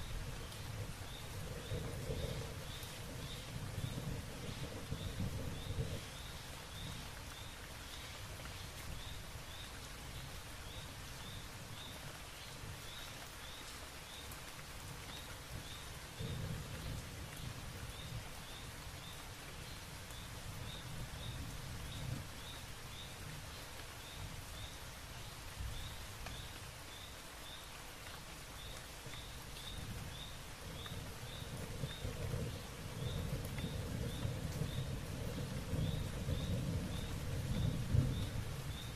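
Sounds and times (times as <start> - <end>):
low rolling rumble: 0.0 - 7.2, 30.6 - 38.9
rain hiss: 0.0 - 38.9.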